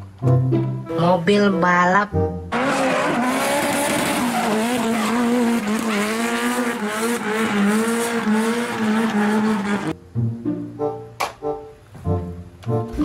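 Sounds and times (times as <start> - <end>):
tyres squealing: 2.5 - 9.9
car engine at high revs: 2.5 - 10.0.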